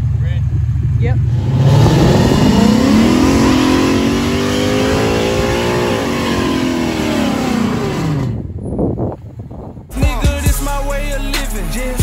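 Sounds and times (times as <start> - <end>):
car engine revving in burnout: 1.2 - 8.4.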